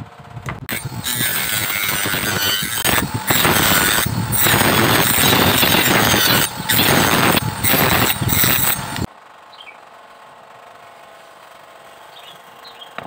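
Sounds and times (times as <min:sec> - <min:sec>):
sanding disc grinding bamboo: 0:00.7 - 0:09.1.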